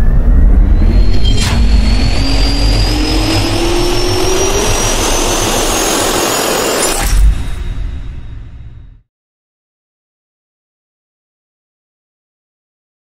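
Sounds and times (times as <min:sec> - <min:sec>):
deep hit: 0:00.0 - 0:06.2
jet engine spooling up: 0:00.0 - 0:08.9.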